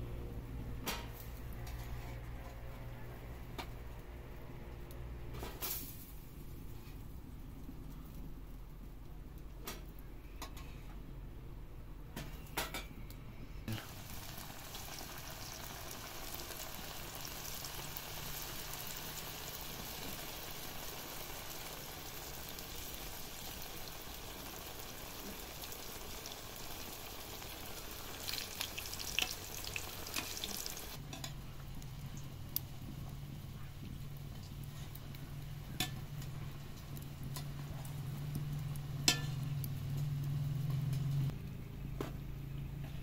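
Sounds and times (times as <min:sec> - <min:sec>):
food sizzling in hot oil: 0:13.7 - 0:32.9, 0:34.3 - 0:40.9.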